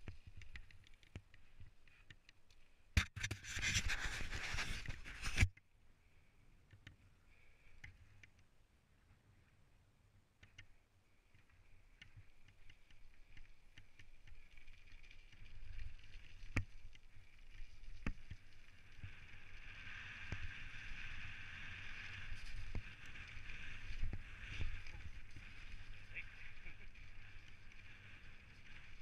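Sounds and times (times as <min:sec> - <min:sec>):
bike tyres rumbling on gravel: 0:14.1 - 0:29.0.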